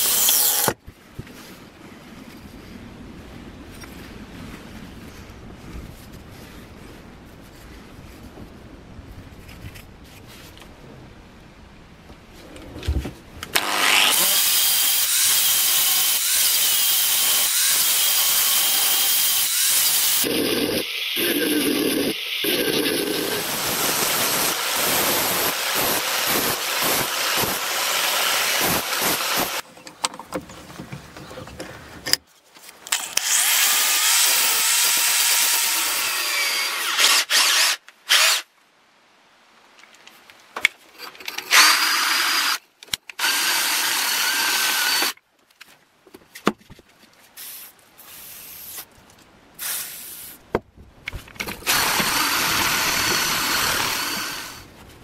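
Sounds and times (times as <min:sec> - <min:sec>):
angle grinder grinding steel: 0:00.0 - 0:00.8, 0:13.6 - 0:29.6, 0:51.7 - 0:54.7
power drill with wire brush: 0:00.0 - 0:00.8, 0:13.6 - 0:29.6, 0:32.9 - 0:38.5, 0:41.4 - 0:42.6, 0:43.2 - 0:45.2, 0:51.6 - 0:54.7.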